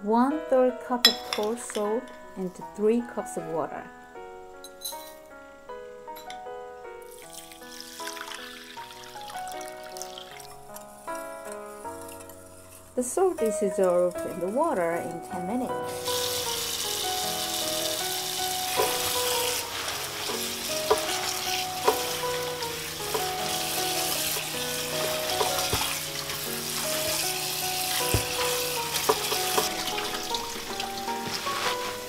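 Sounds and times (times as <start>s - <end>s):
light background music: 0.0s - 32.0s
tap water running: 7.1s - 10.6s, 15.8s - 32.0s
hands washing leaves: 11.7s - 32.0s.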